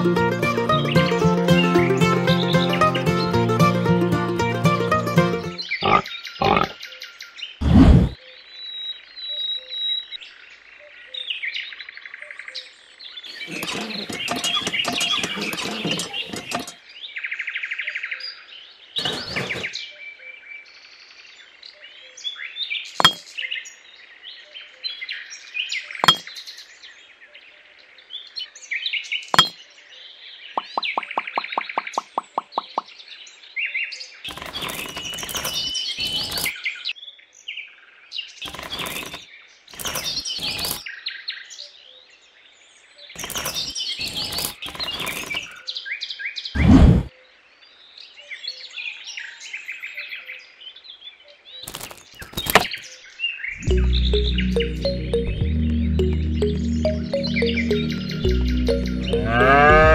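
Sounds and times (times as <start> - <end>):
birds chirping: 5.2 - 8.2, 13.2 - 16.8, 30.5 - 33.0, 51.6 - 59.9
rustling handling noise: 34.3 - 36.5, 39.8 - 40.8, 43.2 - 45.6, 51.6 - 52.8.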